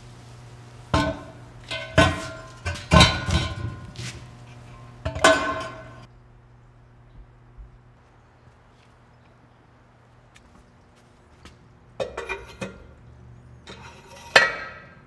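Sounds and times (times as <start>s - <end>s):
steel base clanking on concrete: 0.9s - 6.1s, 12.0s - 13.0s, 13.6s - 15.0s.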